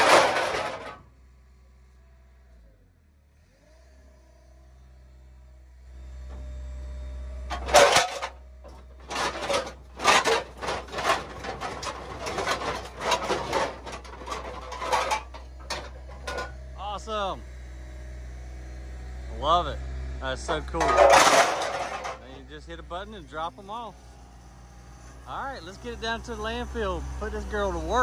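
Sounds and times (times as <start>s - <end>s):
scrap metal clanking: 0.0s - 1.0s, 7.5s - 16.6s, 20.4s - 22.4s
low machine hum: 4.0s - 28.0s.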